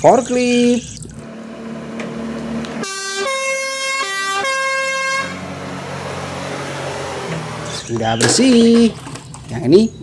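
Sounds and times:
forklift engine humming: 0:01.2 - 0:08.9
two-tone emergency horn: 0:02.8 - 0:05.8.

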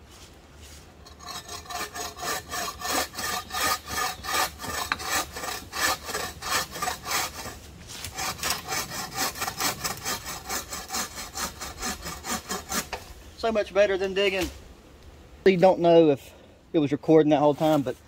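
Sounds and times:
hand saw cutting wood: 0:01.0 - 0:13.1.

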